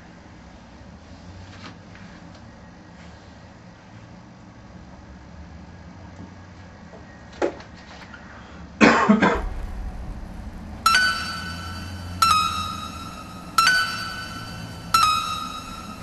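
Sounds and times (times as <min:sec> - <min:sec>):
person coughing: 0:08.8 - 0:09.4
plucked ringing note music: 0:09.4 - 0:16.0.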